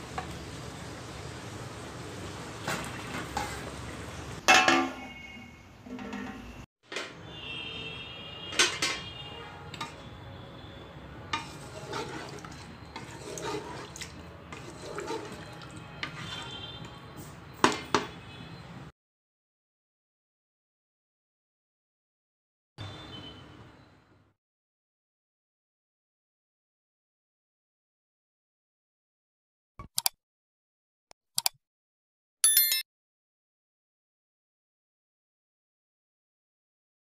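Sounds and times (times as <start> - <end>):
wooden spatula scraping metal pot: 3.0 - 3.8, 11.3 - 16.9.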